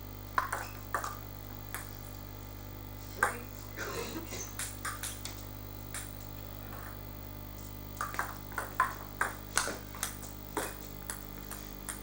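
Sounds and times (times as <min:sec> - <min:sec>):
table tennis ball hits: 0:00.3 - 0:01.9, 0:03.2 - 0:03.5, 0:04.6 - 0:05.2, 0:05.9 - 0:07.0, 0:08.0 - 0:12.0.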